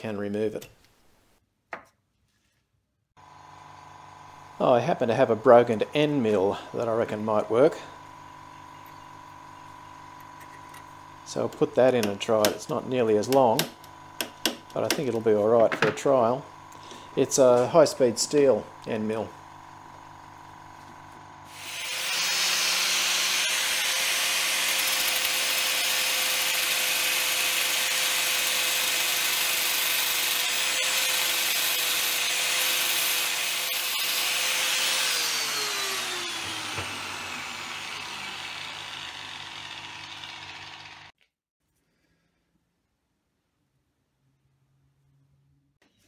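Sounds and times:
power grinder grinding: 21.4 - 41.2.

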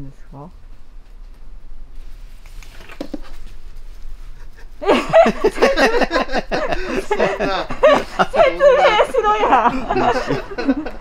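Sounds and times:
people laughing: 4.4 - 11.0
people talking loudly: 7.0 - 10.4.

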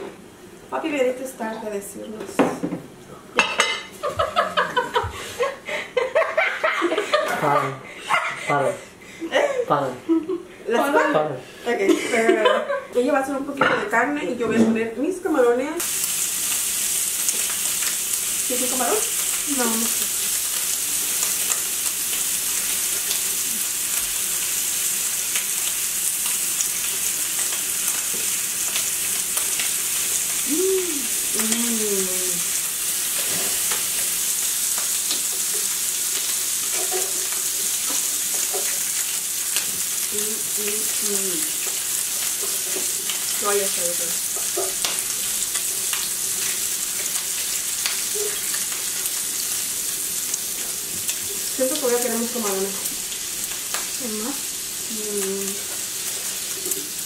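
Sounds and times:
meat sizzling on a grill pan: 15.3 - 57.0.

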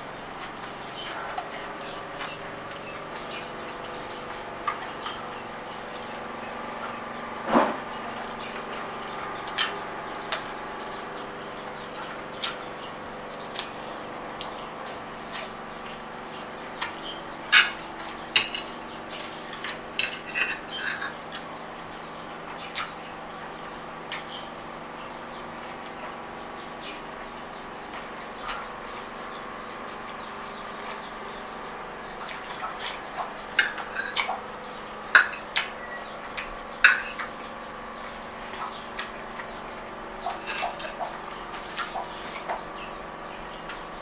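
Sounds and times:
fork clinking on a plate: 36.9 - 37.2
chewing: 38.5 - 42.9
fork scraping ceramic plate: 40.4 - 41.0.

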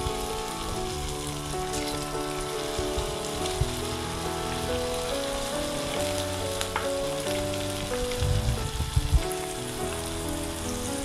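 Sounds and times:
okra sizzling in hot oil: 0.0 - 11.0
soft background melody: 0.0 - 11.0.

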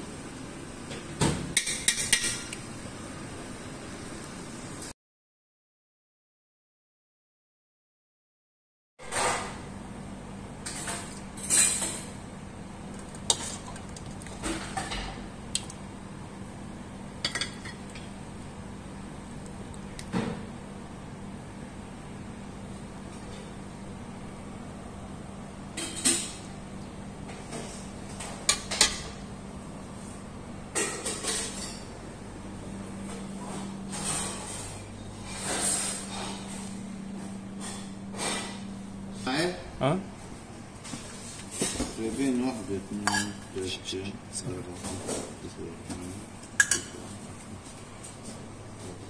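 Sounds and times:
steady low hum: 9.6 - 49.0
metal ladle clinking on pot: 43.0 - 43.4.

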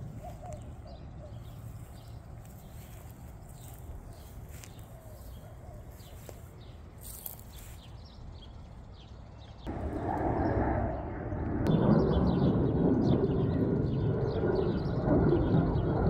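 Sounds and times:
low steady rumble: 0.0 - 6.0, 6.6 - 16.0
small birds chirping: 0.0 - 9.7.

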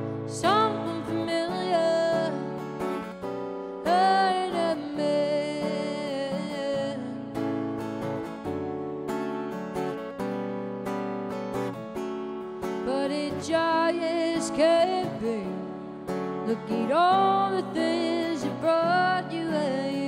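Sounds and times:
acoustic guitar strumming: 0.0 - 20.0
woman singing: 0.3 - 2.9, 3.8 - 7.4, 12.8 - 20.0.

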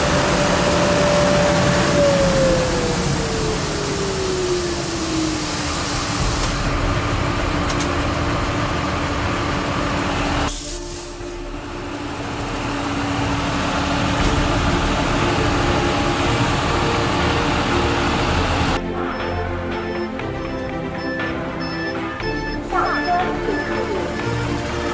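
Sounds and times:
water spray jets: 0.0 - 18.8
engine hum: 0.0 - 24.9.

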